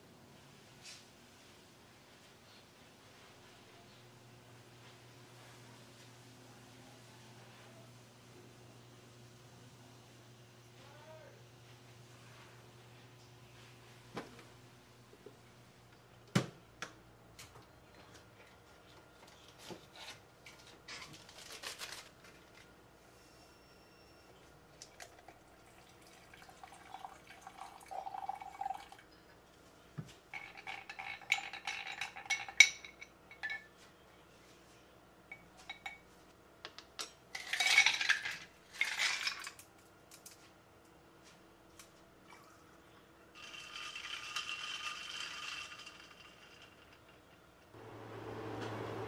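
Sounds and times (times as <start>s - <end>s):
liquid pouring into glass: 24.9s - 29.0s.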